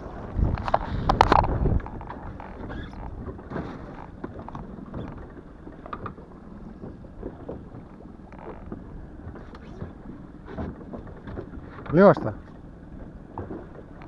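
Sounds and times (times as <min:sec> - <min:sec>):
wind buffeting microphone: 0:00.0 - 0:14.0
small knocks and clicks: 0:00.5 - 0:06.2.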